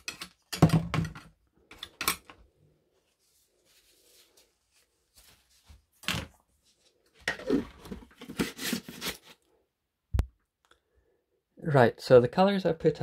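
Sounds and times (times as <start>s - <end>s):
painting materials being handled: 0.0s - 9.5s.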